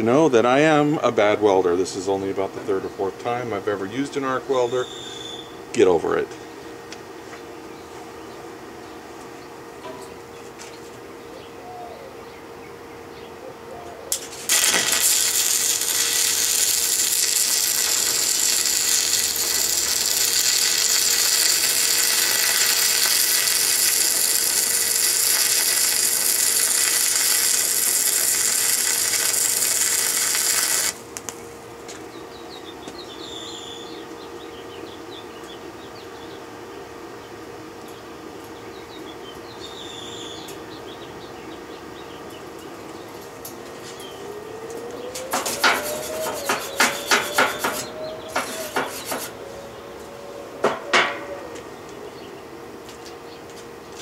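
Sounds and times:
steady hum: 0.0s - 54.0s
arc welder crackling hiss: 14.1s - 32.0s, 43.4s - 49.4s.

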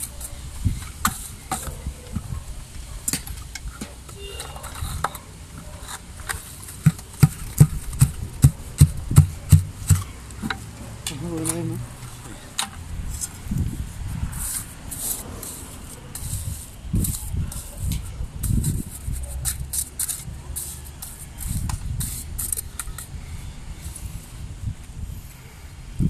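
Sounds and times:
mortar scraping and clinking: 3.1s - 13.4s, 14.3s - 23.1s
block tapped into mortar: 6.8s - 10.6s
person speaking: 10.9s - 12.6s.

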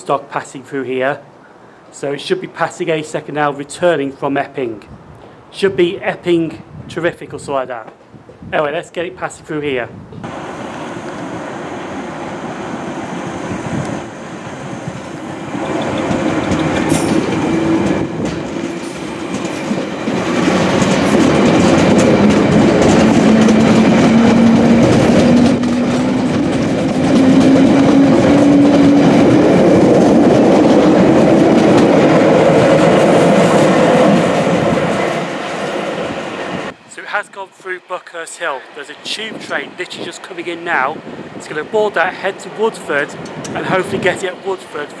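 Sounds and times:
train motor hum: 10.2s - 36.9s
train wheels clattering over rail joints: 14.9s - 35.8s.

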